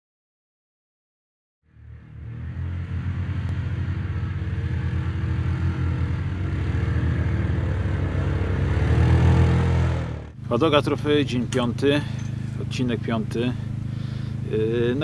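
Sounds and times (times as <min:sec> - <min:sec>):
quad bike engine pulsing: 0:01.7 - 0:15.0.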